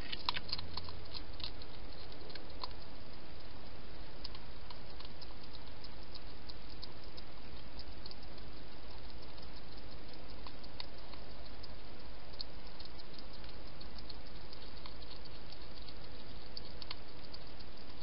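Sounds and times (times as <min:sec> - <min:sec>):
hedgehog mouth clicks and smacks: 0:00.0 - 0:18.0
steady hiss: 0:00.0 - 0:18.0.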